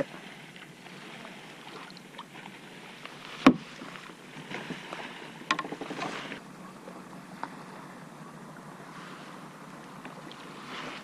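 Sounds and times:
hiss of wind and water: 0.0 - 11.0
fishing rod clicks and rattles: 5.5 - 6.2.

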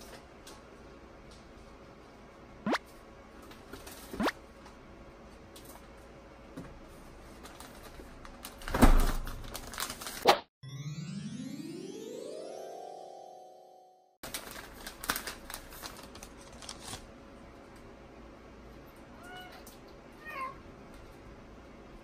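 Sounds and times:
music: 10.6 - 14.2.

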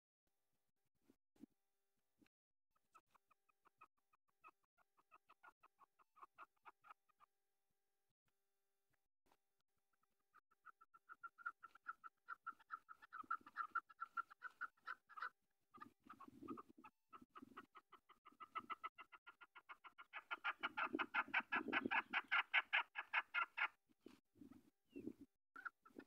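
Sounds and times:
partridge clucking call: 4.5 - 7.2, 10.0 - 23.8.

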